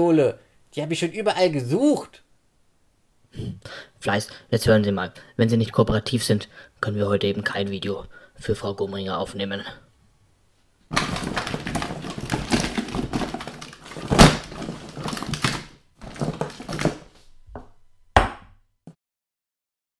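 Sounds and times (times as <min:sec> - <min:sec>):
objects clattering and rattling: 0:10.9 - 0:17.2
thuds: 0:10.9 - 0:18.5.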